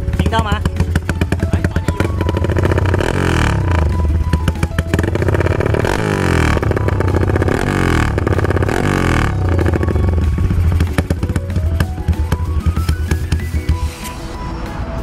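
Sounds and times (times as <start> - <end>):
motorcycle engine revving: 0.0 - 13.8.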